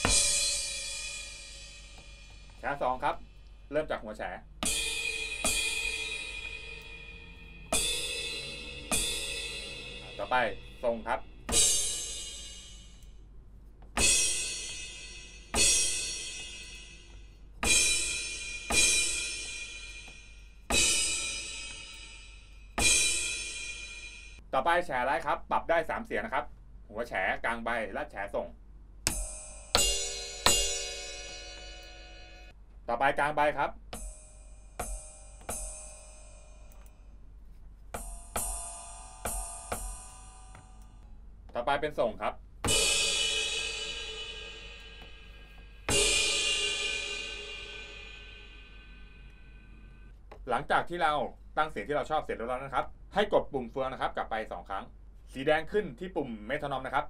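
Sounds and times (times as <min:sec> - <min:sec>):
ride cymbal hits: 0:00.0 - 0:03.7, 0:04.4 - 0:13.2, 0:13.9 - 0:24.4, 0:29.1 - 0:32.6, 0:33.8 - 0:37.2, 0:37.9 - 0:41.0, 0:42.6 - 0:50.1
electronic crash cymbal hits: 0:04.6 - 0:13.0, 0:42.6 - 0:50.1.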